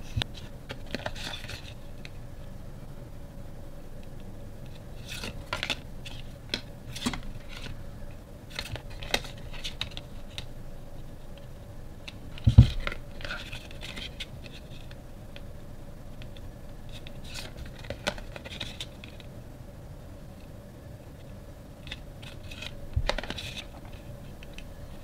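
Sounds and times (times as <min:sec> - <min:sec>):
cardstock tags flicking and rustling: 0:08.5 - 0:10.5, 0:16.2 - 0:19.3, 0:21.8 - 0:24.6.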